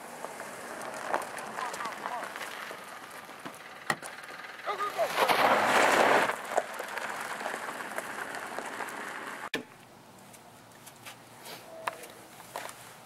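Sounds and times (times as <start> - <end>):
car tyres crunching on gravel: 0.0 - 9.5.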